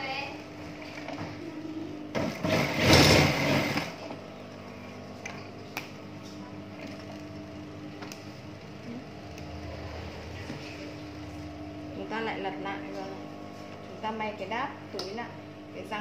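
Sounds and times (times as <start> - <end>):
faint motor hum: 0.0 - 16.0
sewing machine stitching: 2.2 - 3.9.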